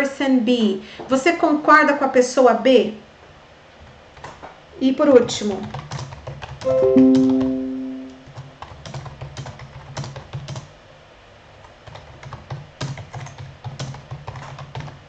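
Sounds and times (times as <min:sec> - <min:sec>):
keyboard typing clicks: 0:05.7 - 0:10.6
held musical note: 0:06.7 - 0:08.3.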